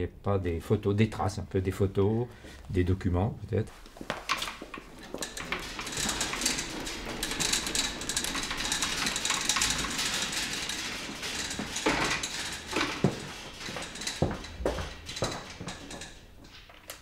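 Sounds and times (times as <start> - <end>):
shelving rolling on rails: 3.6 - 17.0
shelf units knocking: 4.1 - 16.9.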